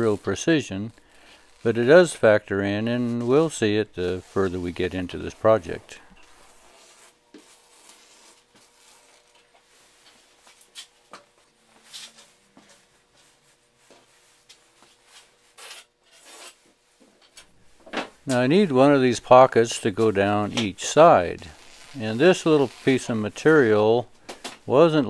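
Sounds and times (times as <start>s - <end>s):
shears cutting fabric: 0.0s - 16.7s, 18.3s - 24.1s
fabric rustling: 21.0s - 24.0s.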